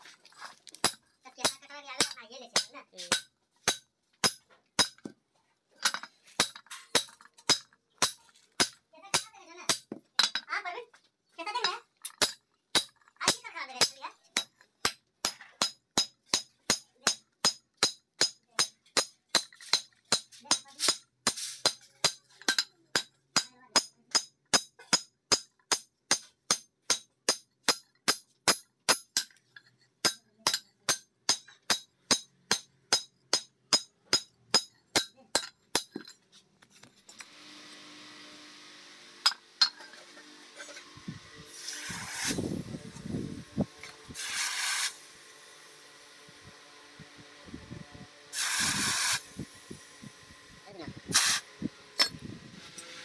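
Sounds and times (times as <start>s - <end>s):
hammer striking metal on anvil: 0.8s - 5.1s, 12.2s - 21.0s, 21.6s - 29.3s, 30.0s - 36.1s.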